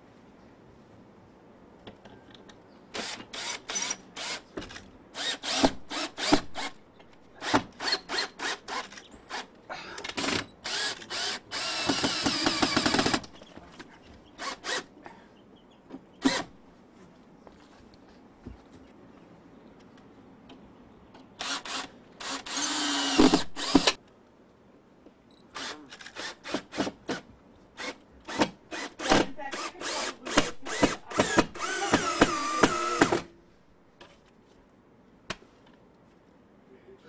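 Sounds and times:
power drill driving screws: 3.0s - 6.8s, 7.4s - 9.5s, 10.2s - 13.3s, 14.4s - 14.9s, 16.2s - 16.5s, 21.4s - 24.0s, 25.6s - 27.2s, 27.8s - 33.3s.

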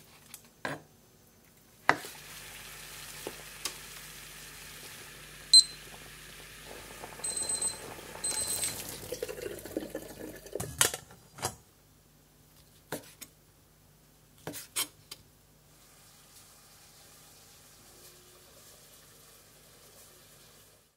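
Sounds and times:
kitchen timer beeping: 5.5s - 5.9s, 7.2s - 8.9s.

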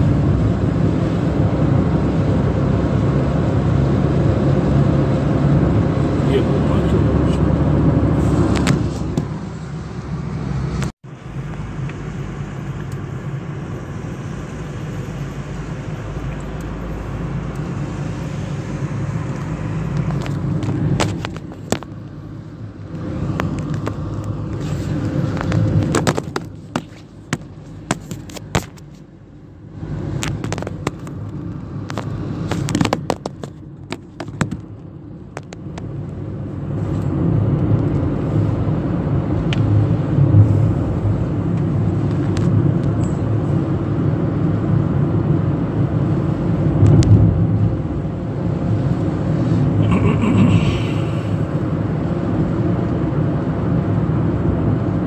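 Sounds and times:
car engine and road rumble: 0.0s - 55.0s
sharp clicks and knocks: 30.2s - 35.9s.

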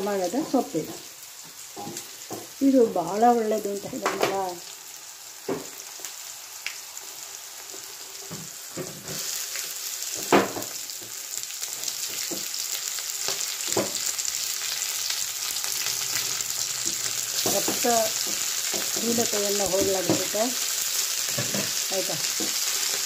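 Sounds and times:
vegetables sizzling in oil: 0.0s - 23.0s
knocks against a pan: 10.2s - 10.7s.

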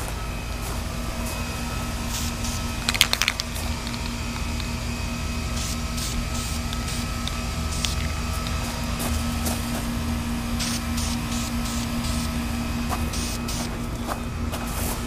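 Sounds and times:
low hum: 0.0s - 15.0s
spray paint hissing: 2.1s - 15.0s
spray can rattling clicks: 2.8s - 4.8s, 5.6s - 8.6s.

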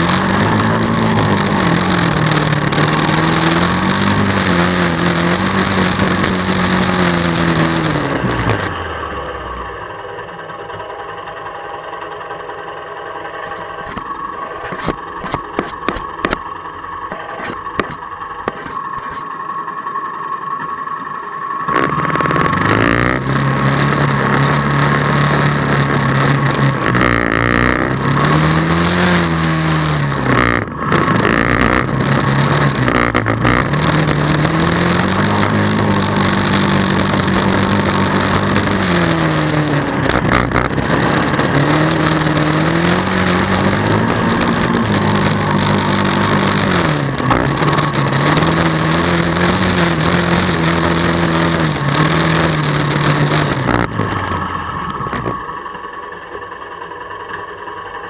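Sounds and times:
atv engine revving: 0.0s - 19.2s, 21.2s - 58.0s
clicks of mud and stones: 13.4s - 16.4s.

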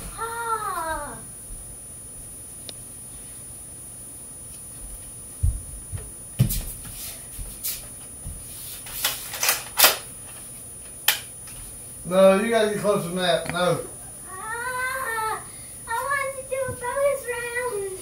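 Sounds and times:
dull footfalls on floor: 4.8s - 8.6s, 16.6s - 17.0s.

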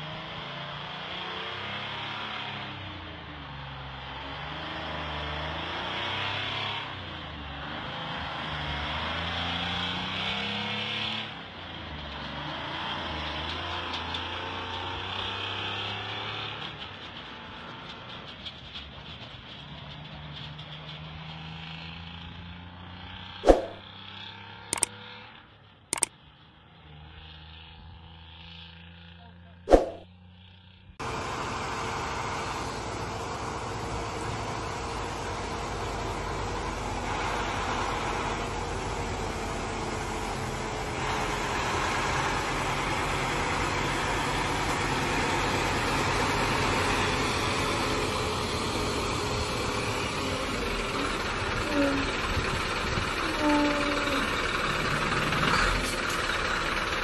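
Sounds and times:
diesel engine droning: 21.4s - 57.0s
steady rushing noise: 29.7s - 30.0s.

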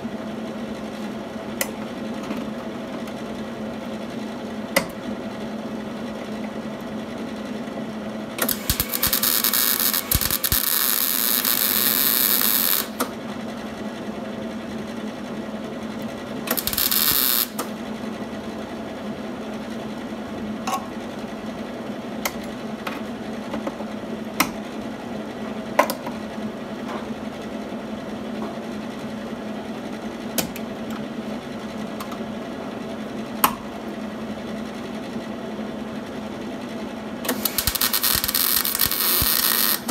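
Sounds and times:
welder arc crackling: 8.4s - 13.1s, 16.5s - 17.7s, 37.3s - 39.9s
sharp clicks: 37.3s - 39.9s.

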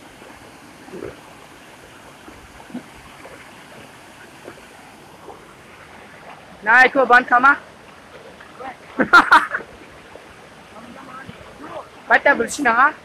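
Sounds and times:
waterfall rushing: 10.6s - 13.0s.

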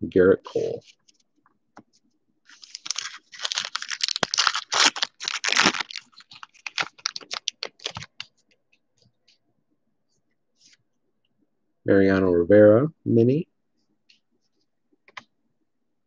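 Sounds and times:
wrapper tearing and crinkling: 2.5s - 8.2s.

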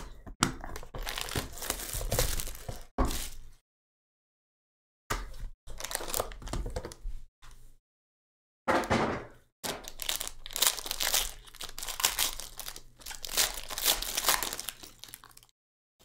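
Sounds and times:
foil pack crinkling and tearing: 0.7s - 3.4s, 5.7s - 6.5s, 9.7s - 15.5s.

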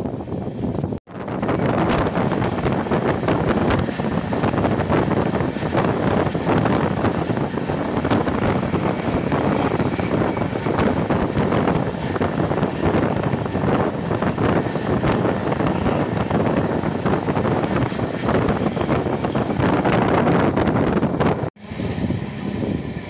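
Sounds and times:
train rushing with rattles: 0.0s - 23.0s
wind buffeting microphone: 0.0s - 23.0s.

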